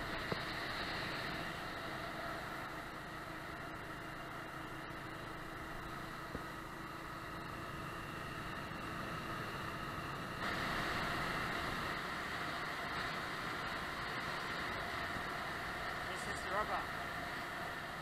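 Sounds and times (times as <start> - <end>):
small motorbike engine running: 0.0 - 18.0
wind and road noise: 0.0 - 18.0.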